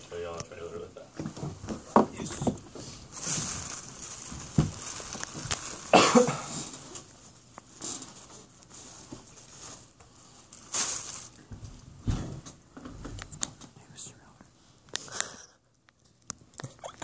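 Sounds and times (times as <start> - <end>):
small knocks and rustles: 1.2 - 5.9, 6.6 - 13.8.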